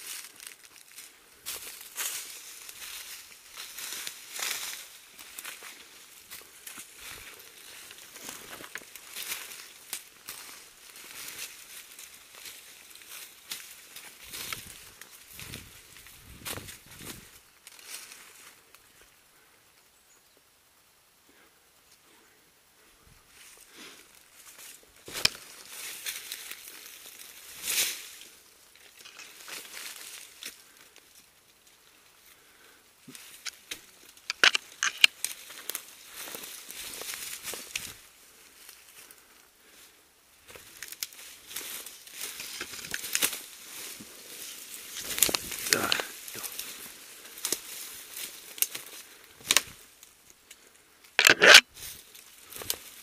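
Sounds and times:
leaves and twigs crunching underfoot: 0:00.0 - 0:20.1, 0:22.8 - 0:53.0
sharp crack of twig: 0:33.4 - 0:35.4, 0:48.5 - 0:49.8.

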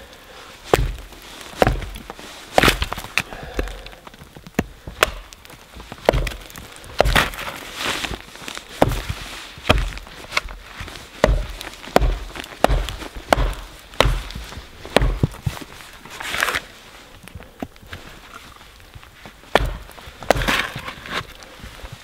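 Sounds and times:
wood splitting and splintering: 0:00.0 - 0:22.0
axe chopping wood: 0:00.7 - 0:07.6, 0:08.8 - 0:10.6, 0:11.2 - 0:15.5, 0:19.5 - 0:20.9.

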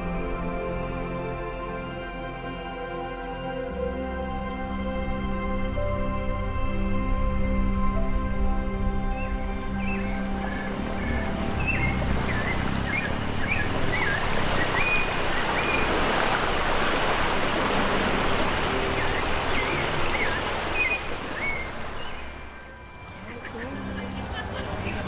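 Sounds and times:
water rushing: 0:09.0 - 0:25.0
birds whistling: 0:09.2 - 0:22.7.

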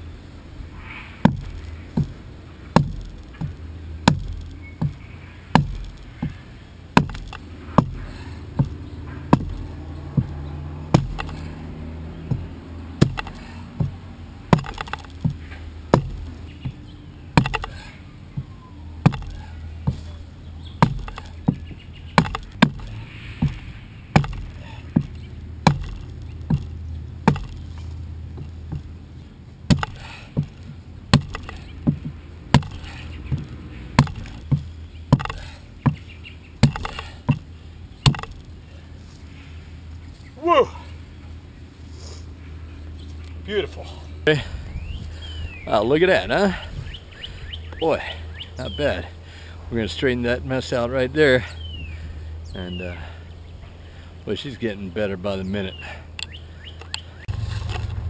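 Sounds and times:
adze chopping wood: 0:01.2 - 0:29.0, 0:29.6 - 0:38.6.

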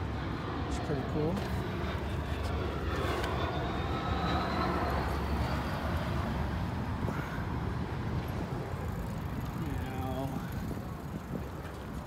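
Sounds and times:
faint high whine: 0:00.0 - 0:07.5
distant engines rumbling: 0:00.0 - 0:12.0.

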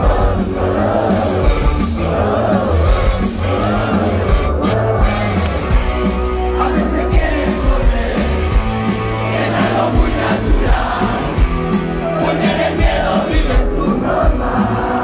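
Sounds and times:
crowd singing along: 0:00.0 - 0:15.0
rock band playing live: 0:00.0 - 0:15.0.

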